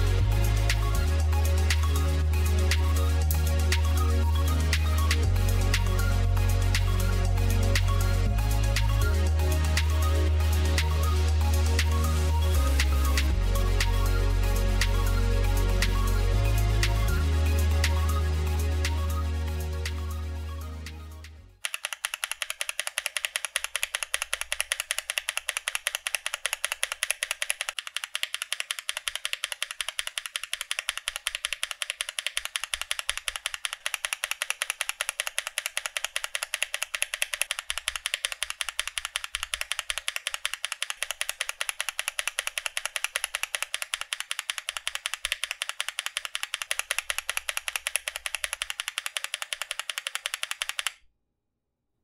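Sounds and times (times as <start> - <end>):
mechanical keyboard key clacks: 21.6 - 51.0.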